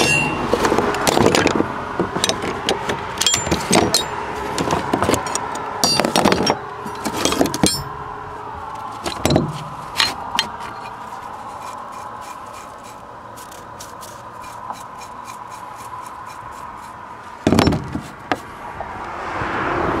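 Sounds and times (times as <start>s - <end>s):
metal tools clinking on wood: 0.0s - 8.0s, 8.9s - 12.4s.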